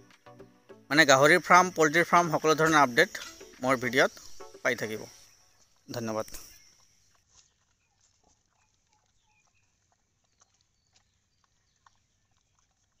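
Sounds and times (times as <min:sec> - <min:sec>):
short high chirps: 0:00.0 - 0:07.0
pigs chewing grass: 0:06.6 - 0:13.0.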